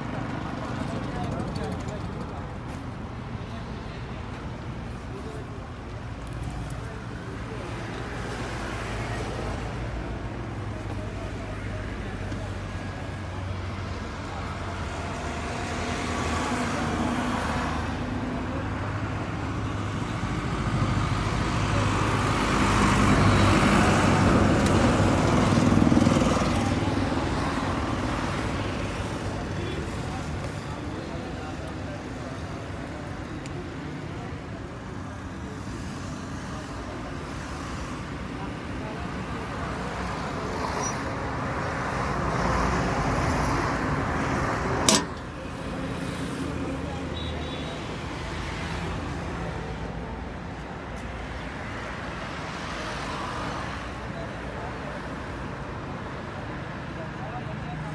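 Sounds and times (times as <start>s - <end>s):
metal cover click: 44.8s - 45.3s.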